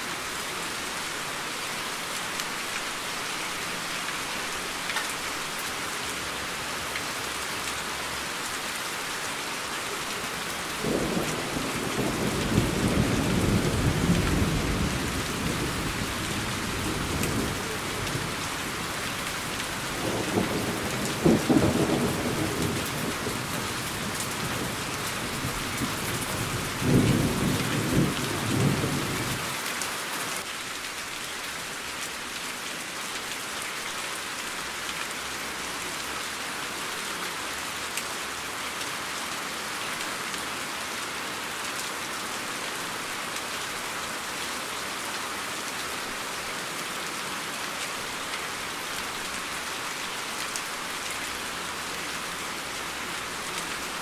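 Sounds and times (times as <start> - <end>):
rain hissing: 0.0 - 32.4.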